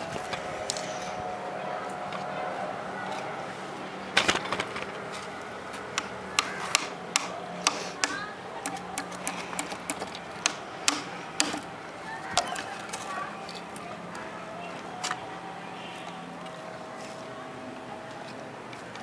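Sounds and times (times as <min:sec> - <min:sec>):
hammer tapping nails into wood: 0:06.0 - 0:11.6.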